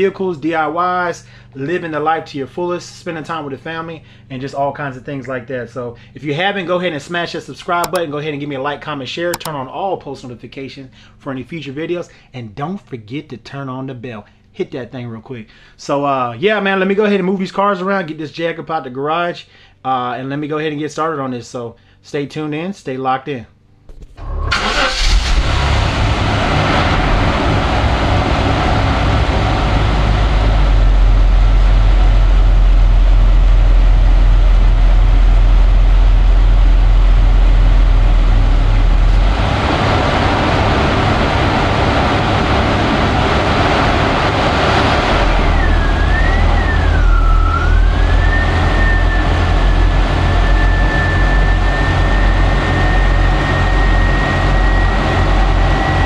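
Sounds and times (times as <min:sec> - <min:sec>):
car engine running: 0:07.7 - 0:08.0, 0:23.9 - 0:56.0
thin whining tone: 0:45.2 - 0:56.0.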